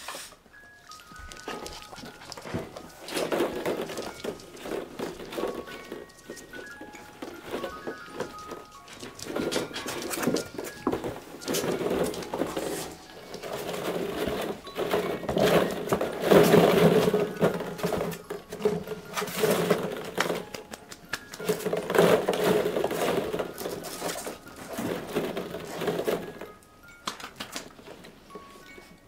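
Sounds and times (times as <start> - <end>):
plastic balls clattering: 0.6 - 29.0.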